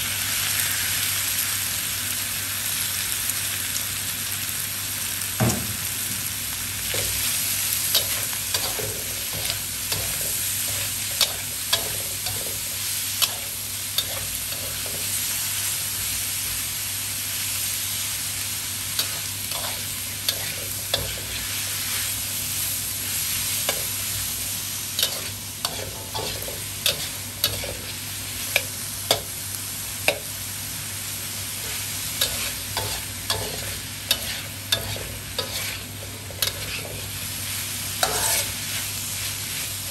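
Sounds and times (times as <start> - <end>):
food sizzling in a wok: 0.0 - 39.9
spatula scraping and clinking pan: 38.0 - 38.6.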